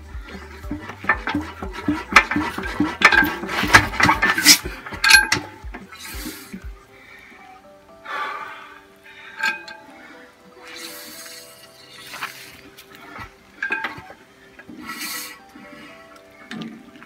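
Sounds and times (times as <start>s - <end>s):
metallic clanks and clinks: 0.6s - 5.8s, 9.4s - 9.8s, 13.6s - 14.2s
brief hiss: 10.6s - 12.7s, 14.8s - 15.5s.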